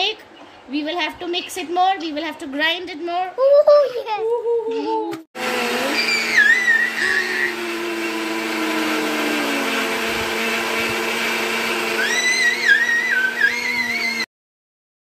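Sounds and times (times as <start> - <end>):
electric mixer grinder running: 5.4 - 14.3
child squealing: 5.8 - 7.7, 11.9 - 14.2.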